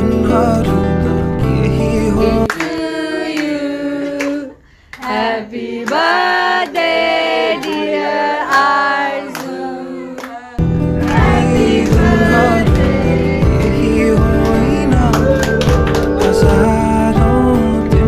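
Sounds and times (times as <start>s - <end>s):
person singing: 1.4s - 18.0s
music with deep bass: 10.6s - 18.0s
sharp clap-like beats: 11.0s - 17.4s.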